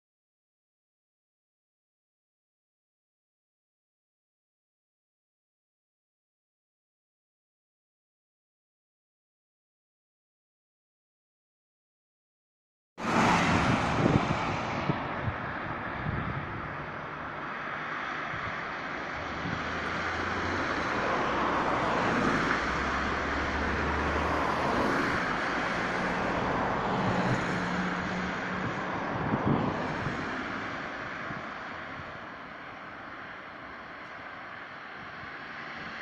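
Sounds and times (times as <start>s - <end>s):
passing traffic engines: 13.0s - 36.0s.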